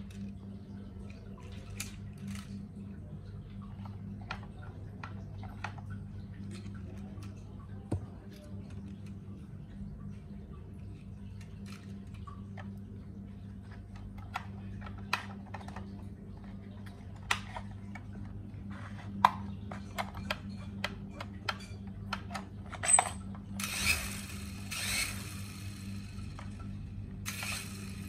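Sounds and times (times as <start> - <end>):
steady low hum: 0.0 - 28.0
small electric motor whir: 23.6 - 28.0.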